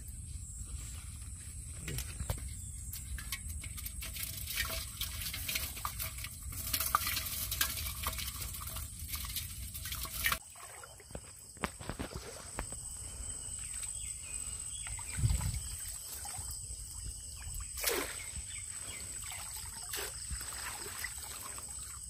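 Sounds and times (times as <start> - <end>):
hand splashing water in a pot: 4.0 - 12.8.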